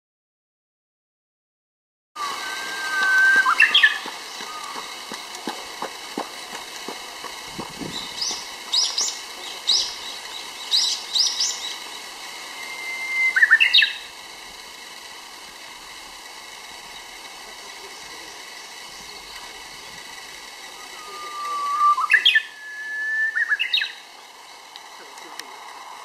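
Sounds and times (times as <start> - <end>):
short high bird chirps: 2.2 - 4.7, 7.9 - 14.1, 20.8 - 24.0
bird song whistle and notes: 2.2 - 4.9, 7.9 - 14.1, 20.8 - 24.1.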